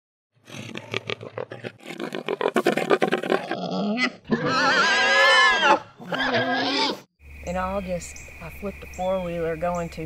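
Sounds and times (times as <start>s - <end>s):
hogs grunting: 0.4s - 7.0s
hog squealing: 0.8s - 7.0s.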